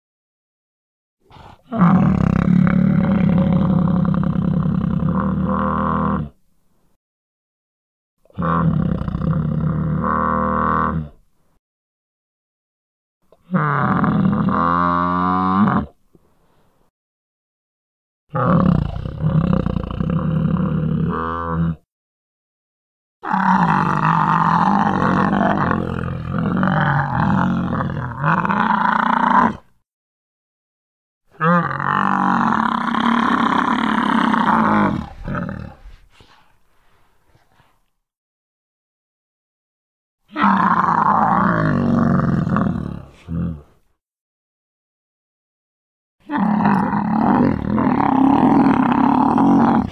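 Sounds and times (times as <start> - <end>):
rough creature call: 1.2 - 6.4, 18.3 - 21.9, 23.2 - 29.8, 31.3 - 36.4, 40.3 - 43.8, 46.2 - 49.9
animal roar: 1.3 - 6.4, 8.3 - 11.2, 13.4 - 16.0, 18.3 - 21.9, 23.2 - 29.8, 31.3 - 36.5, 40.3 - 43.8, 46.2 - 49.9
short breath: 16.3 - 16.9, 35.8 - 37.8.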